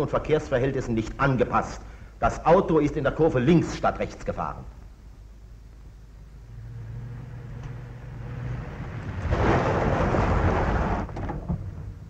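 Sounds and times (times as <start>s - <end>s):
car engine hum: 5.7s - 12.0s
tyres rumbling on gravel: 6.4s - 12.0s.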